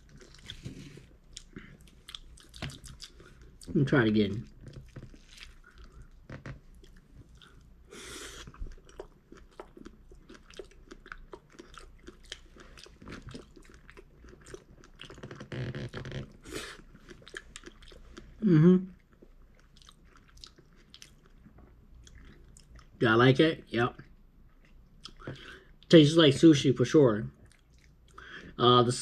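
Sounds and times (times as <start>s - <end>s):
person chewing food: 0.0s - 3.8s, 4.4s - 23.0s, 24.4s - 25.8s, 27.4s - 28.3s
person humming: 18.4s - 18.9s.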